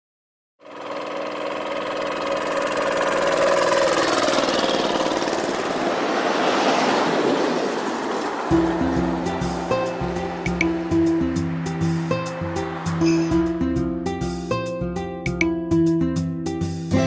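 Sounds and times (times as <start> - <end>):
motor scooter passing by: 0.6 - 13.7.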